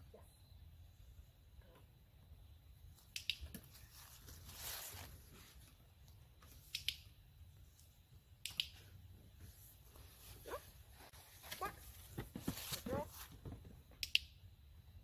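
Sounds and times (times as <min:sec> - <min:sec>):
faint sharp clicks: 0:03.1 - 0:03.6, 0:06.7 - 0:07.0, 0:08.4 - 0:08.8, 0:14.0 - 0:14.3
soft rustle: 0:03.6 - 0:06.6, 0:09.3 - 0:13.6.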